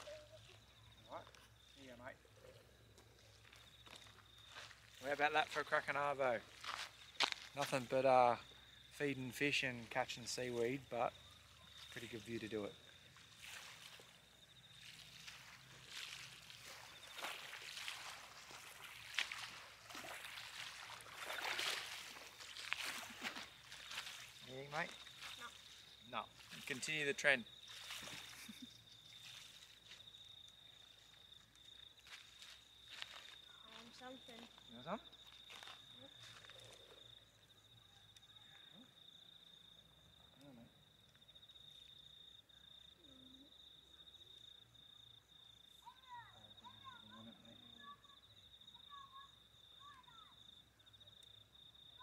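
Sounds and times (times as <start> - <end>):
insect trill: 0.0 - 52.0
small waves lapping on shore: 11.5 - 29.9.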